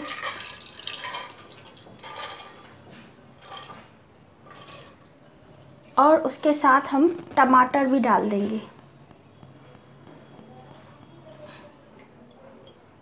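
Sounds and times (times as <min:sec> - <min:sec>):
lentils and water pouring: 0:00.0 - 0:02.8, 0:03.4 - 0:05.1.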